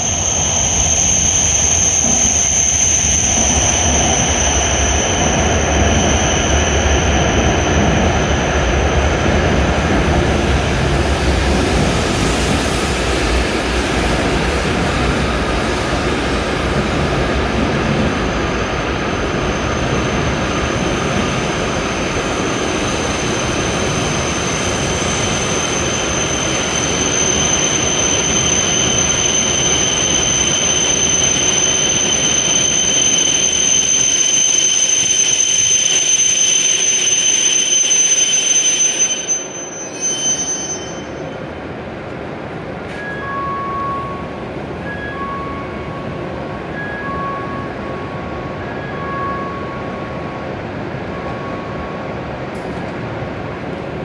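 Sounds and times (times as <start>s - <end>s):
high steady brake squeal: 0.0s - 9.7s, 18.2s - 41.5s, 42.9s - 50.2s
train rumbling into platform: 0.0s - 54.0s.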